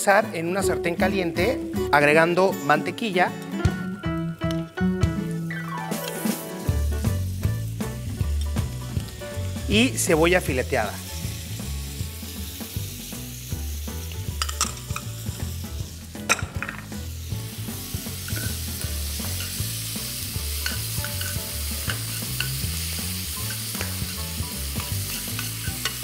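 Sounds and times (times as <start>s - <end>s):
onions sizzling in butter: 4.0s - 26.0s
metal spoon scraping a pan: 23.4s - 26.0s.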